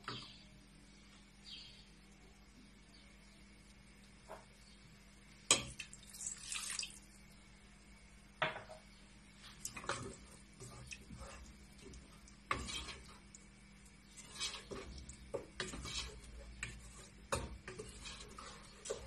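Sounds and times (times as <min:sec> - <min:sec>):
wooden spoon knocking on metal pot: 0:16.6 - 0:17.8.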